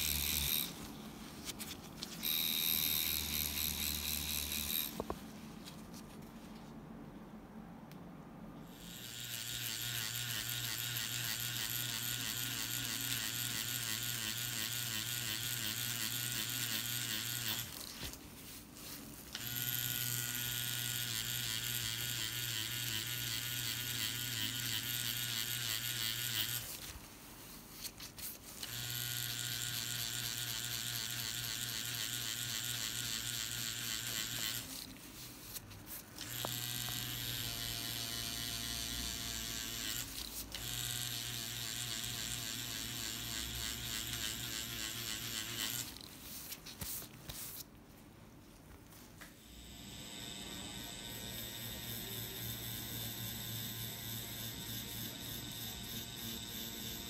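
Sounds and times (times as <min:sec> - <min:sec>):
tattoo machine buzzing: 0:00.0 - 0:00.9, 0:02.0 - 0:05.2, 0:08.6 - 0:17.9, 0:19.3 - 0:26.8, 0:28.6 - 0:34.9, 0:36.2 - 0:46.1, 0:49.4 - 0:57.0.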